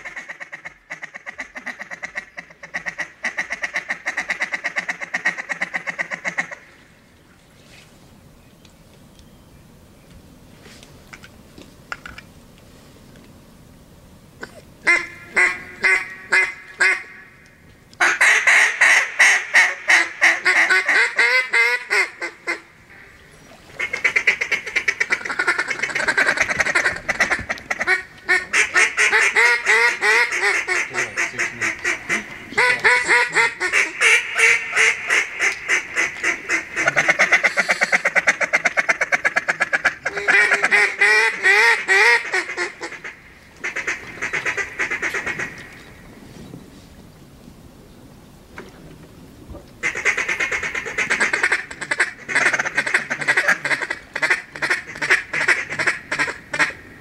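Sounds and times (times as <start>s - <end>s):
duck quacking rapidly: 0.0s - 6.6s, 14.8s - 17.2s, 18.0s - 22.6s, 23.8s - 45.6s, 49.8s - 56.8s.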